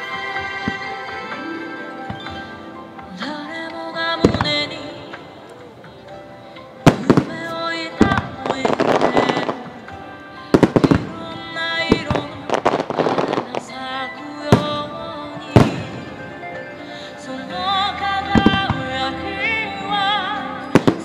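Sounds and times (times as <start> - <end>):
music soundtrack: 0.0 - 21.0
fireworks bangs: 6.8 - 13.7, 15.5 - 16.3
crackling firework stars: 6.8 - 17.2.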